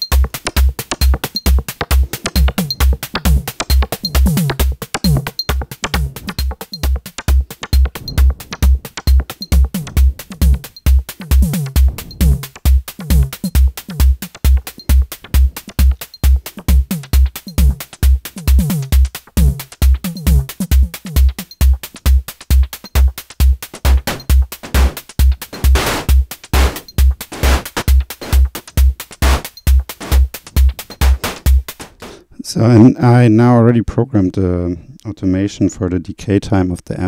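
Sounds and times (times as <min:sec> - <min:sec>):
hi-hat ticks: 0:00.0 - 0:32.1
kick drum beat: 0:00.0 - 0:32.1
percussive notes dropping in pitch: 0:00.2 - 0:17.9
noisy snare hit with delay: 0:04.4 - 0:14.4, 0:23.9 - 0:28.4.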